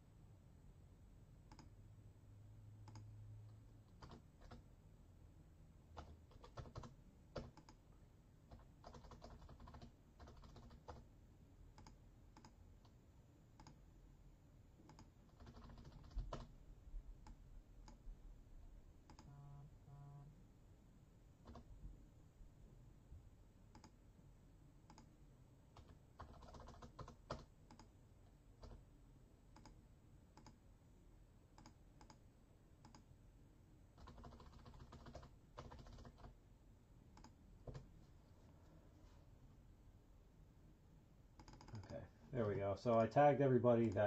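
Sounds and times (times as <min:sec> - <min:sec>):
computer keyboard typing: 0:03.9 - 0:04.6, 0:05.9 - 0:07.8, 0:08.5 - 0:11.1, 0:11.8 - 0:12.6, 0:14.9 - 0:16.5, 0:21.4 - 0:21.7, 0:25.8 - 0:27.9, 0:28.6 - 0:28.8, 0:31.6 - 0:32.2, 0:32.8 - 0:33.0, 0:34.0 - 0:36.3, 0:41.4 - 0:42.0.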